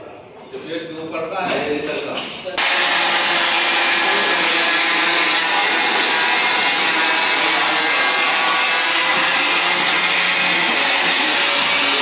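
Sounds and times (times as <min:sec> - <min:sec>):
angle grinder cutting plastic: 0:02.6 - 0:12.0.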